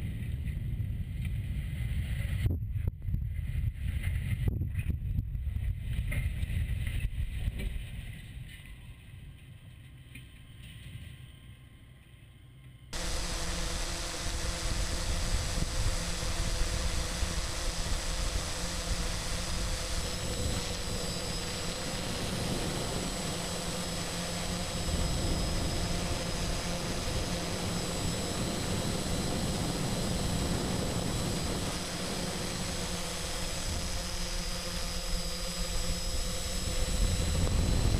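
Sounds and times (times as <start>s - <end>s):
drone propellers whining: 13.0s - 37.9s.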